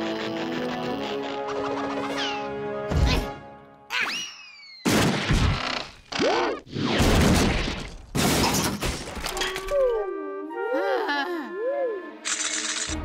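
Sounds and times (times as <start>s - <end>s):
cartoon music: 0.6s - 4.4s, 9.5s - 12.3s.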